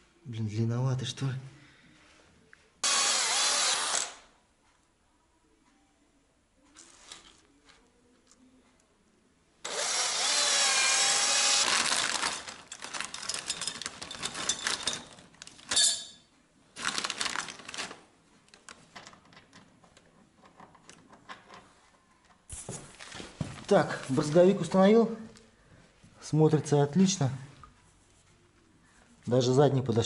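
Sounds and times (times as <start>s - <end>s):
cordless drill whining: 2.8s - 4.2s, 9.6s - 12.3s
rustling handling noise: 6.6s - 8.6s, 11.8s - 16.1s, 16.7s - 26.2s.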